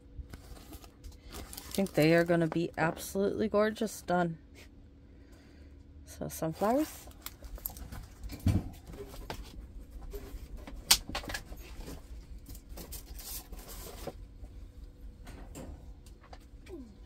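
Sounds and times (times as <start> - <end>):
plastic wrapping crinkling: 0.3 - 3.1, 6.6 - 8.3.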